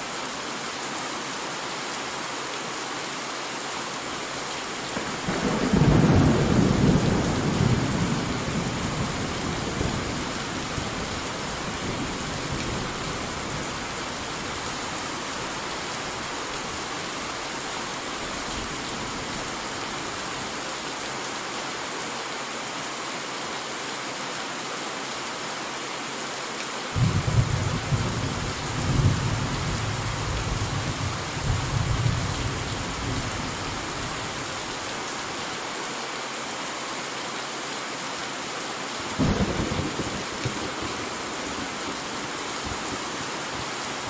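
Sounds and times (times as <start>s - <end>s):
heavy rain: 0.0s - 44.0s
thunder rumbling: 5.0s - 13.6s, 27.0s - 33.6s, 39.2s - 41.8s.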